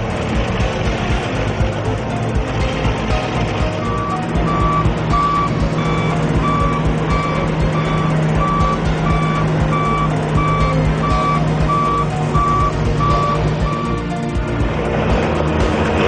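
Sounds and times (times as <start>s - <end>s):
machine engine drone: 0.0s - 16.0s
reversing alarm beeping: 3.7s - 14.1s.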